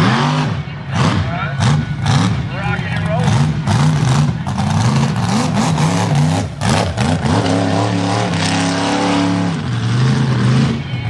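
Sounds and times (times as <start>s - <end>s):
truck engine revving: 0.0s - 11.0s.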